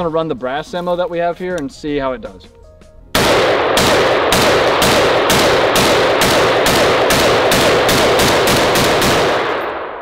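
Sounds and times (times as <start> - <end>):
rifle shots echoing: 3.2 - 10.0.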